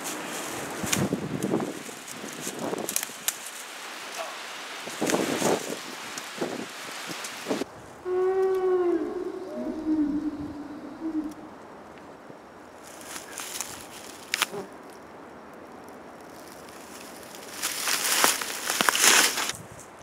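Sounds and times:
footsteps crunching dry leaves: 0.0s - 3.8s, 12.8s - 14.5s, 16.4s - 19.6s
low wavering call: 8.0s - 11.6s.

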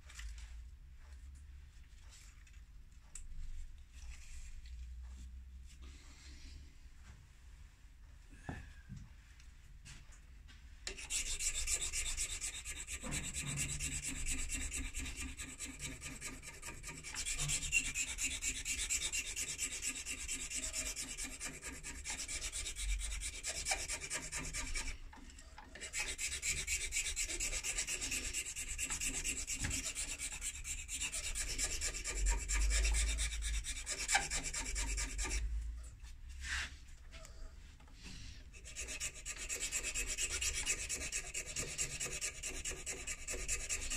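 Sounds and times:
hand file rasping on metal: 10.9s - 35.6s, 38.5s - 43.9s.

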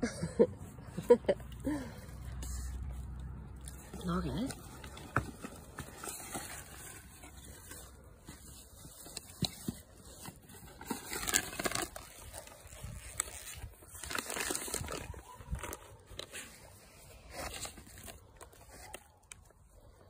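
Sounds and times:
paper and plastic rustling: 2.2s - 20.0s.

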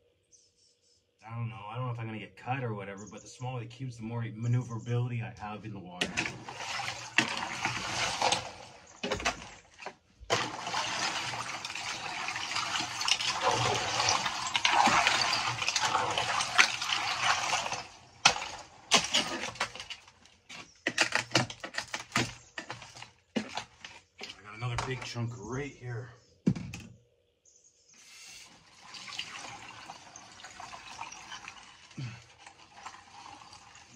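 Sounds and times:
ice chunks clinking and knocking: 6.0s - 25.1s, 28.8s - 33.9s
icy water sloshing and splashing: 6.0s - 25.1s, 28.4s - 33.9s.

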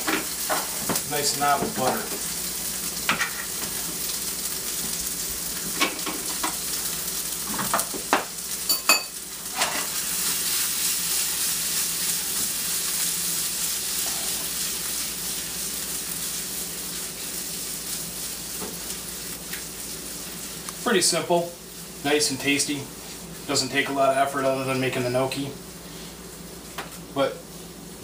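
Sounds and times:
food sizzling in a skillet: 0.0s - 28.0s.

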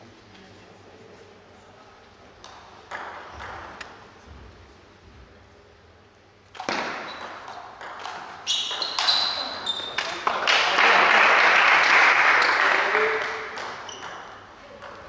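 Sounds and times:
table tennis ball clicking: 13.5s - 15.0s.

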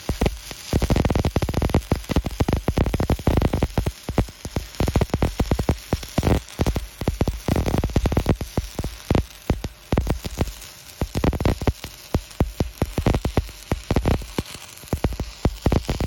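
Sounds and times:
welding arc crackling and popping: 0.0s - 16.0s.

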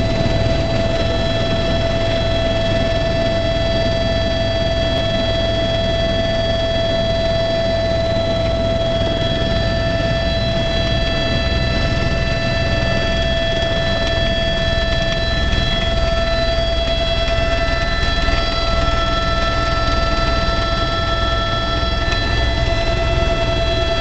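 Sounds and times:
helicopter main rotor beat: 0.0s - 24.0s
helicopter turbine whine: 0.0s - 24.0s.

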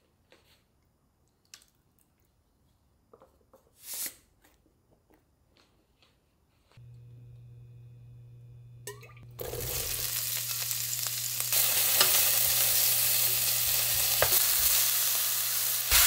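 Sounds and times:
steady low hum: 6.8s - 9.4s.

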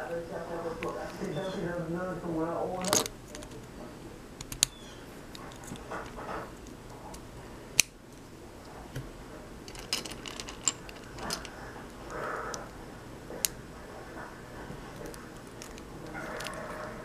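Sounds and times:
loose bricks rattling: 4.5s - 7.4s, 8.8s - 17.0s
plastic bricks snapping: 7.8s - 8.0s
plastic bricks clicking: 9.7s - 12.7s, 14.9s - 17.0s.

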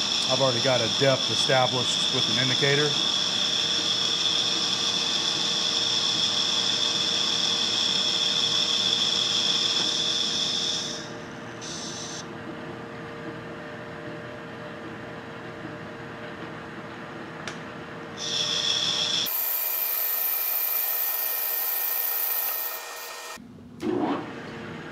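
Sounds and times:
lathe spindle humming: 0.0s - 12.2s, 18.2s - 23.4s
lathe cutting whine: 0.0s - 12.3s, 18.2s - 23.4s.

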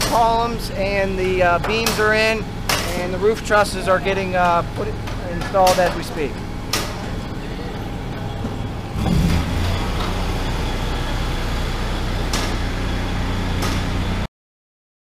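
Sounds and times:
machinery humming: 0.0s - 14.3s
sharp knocks: 1.6s - 3.1s, 4.4s - 7.1s.

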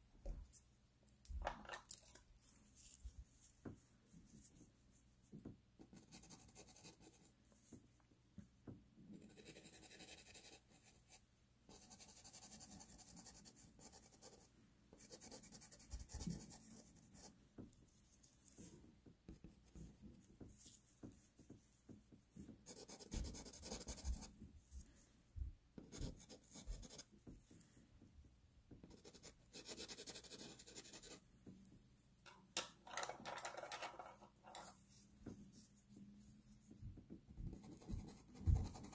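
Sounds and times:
pencil scratching on paper: 5.8s - 7.3s, 9.1s - 17.4s, 22.6s - 24.3s, 25.8s - 27.1s, 28.8s - 31.2s, 37.5s - 38.9s.

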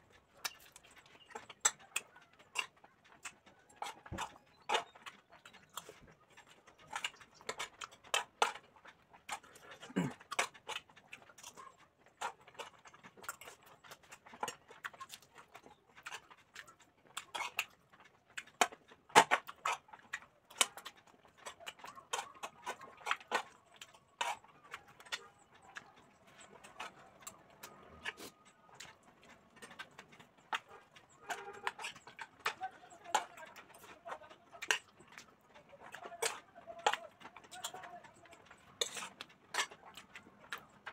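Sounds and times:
wet chewing and lip-smacking: 0.0s - 40.9s.

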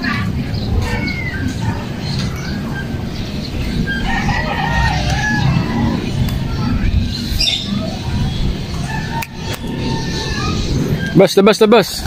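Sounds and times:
steady low rumble: 0.0s - 12.0s
rooster crowing: 3.8s - 6.0s.

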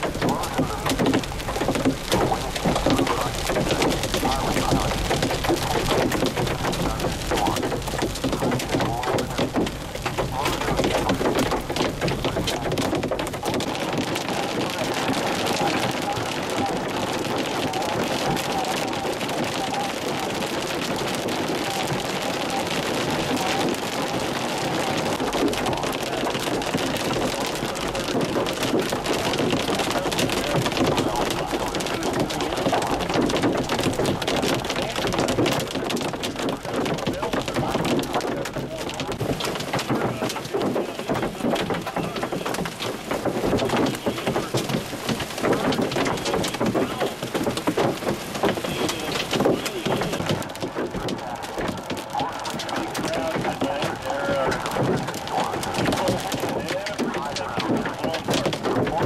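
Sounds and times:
hail and rain on car roof: 0.0s - 59.0s.

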